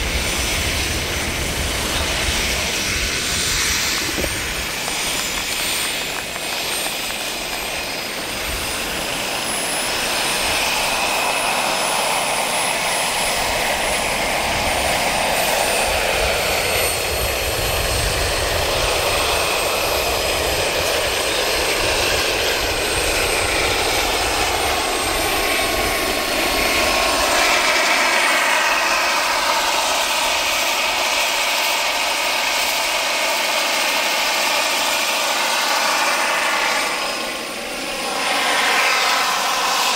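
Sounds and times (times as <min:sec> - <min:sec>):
helicopter rotor noise: 0:00.0 - 0:39.9
turbine whine: 0:00.0 - 0:39.9.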